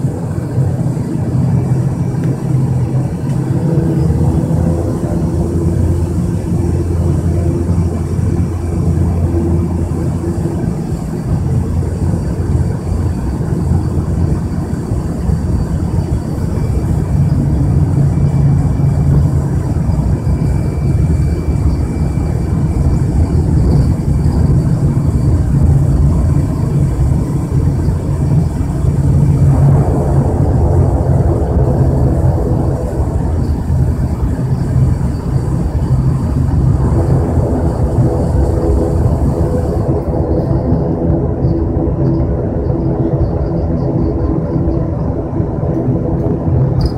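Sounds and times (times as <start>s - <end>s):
turboprop engine droning: 0.0s - 46.9s.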